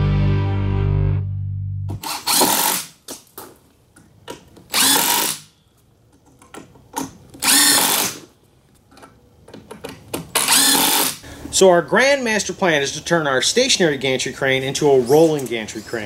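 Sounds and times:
cordless drill driving screws: 2.0s - 2.9s, 4.7s - 5.5s, 7.4s - 8.2s, 10.4s - 11.2s.

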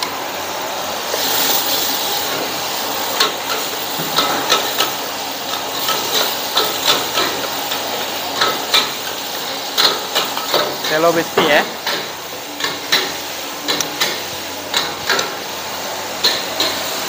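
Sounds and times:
food sizzling in a pan: 0.0s - 17.0s.

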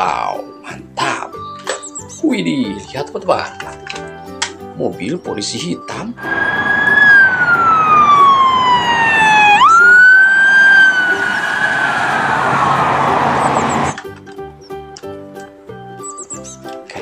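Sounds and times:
police siren wailing: 6.2s - 14.0s.

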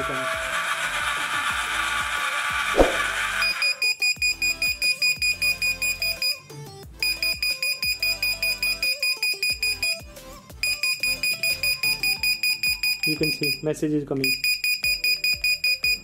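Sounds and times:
electronic buzzer beeping rapidly: 3.4s - 6.4s, 7.0s - 10.0s, 10.6s - 13.6s, 14.2s - 16.0s.

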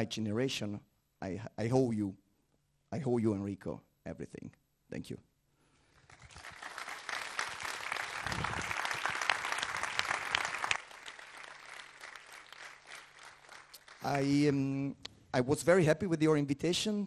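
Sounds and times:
audience applauding: 6.0s - 14.3s.

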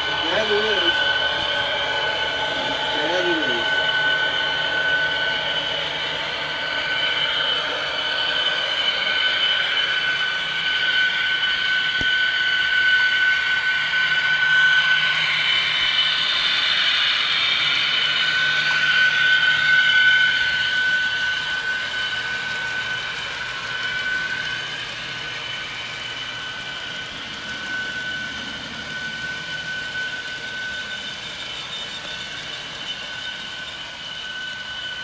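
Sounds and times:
model locomotive motor whine: 0.0s - 35.0s
wheels rattling on track: 17.6s - 35.0s.

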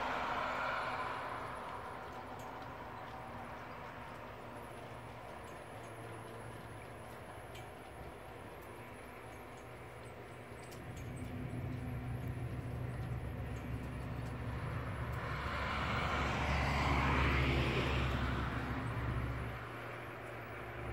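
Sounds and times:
vehicle passing: 0.0s - 9.1s, 10.8s - 20.9s
steady low hum: 0.0s - 16.1s.

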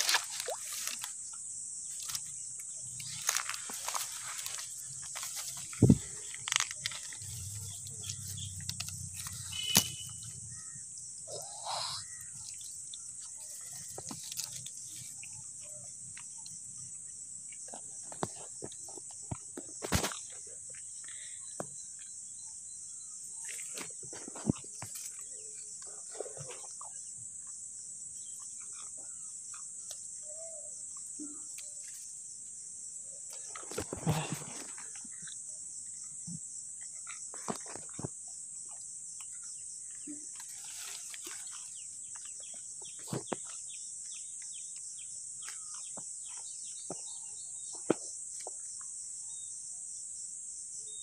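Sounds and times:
grass rustling: 0.0s - 1.2s, 3.0s - 10.2s
insect chorus chirring: 0.0s - 51.0s.

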